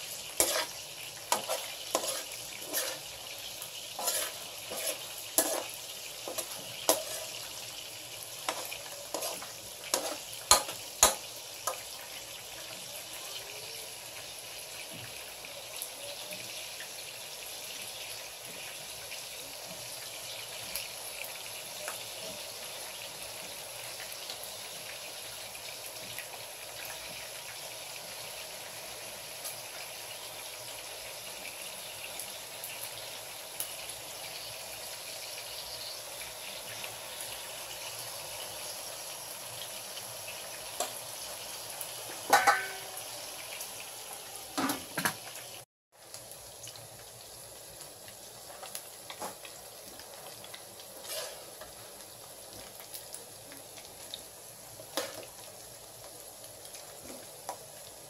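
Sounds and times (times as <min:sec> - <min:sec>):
shrimp sizzling in oil: 0:00.0 - 0:58.0
metal spatula scraping pan: 0:00.2 - 0:03.2, 0:03.9 - 0:07.4, 0:08.4 - 0:11.8, 0:42.3 - 0:43.0, 0:51.0 - 0:51.5.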